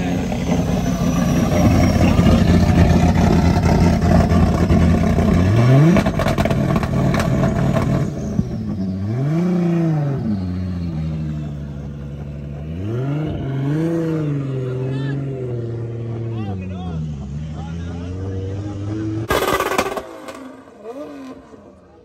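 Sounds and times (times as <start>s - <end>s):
exhaust cracks: 0.0s - 8.8s, 19.2s - 22.0s
car engine revving: 0.0s - 22.0s.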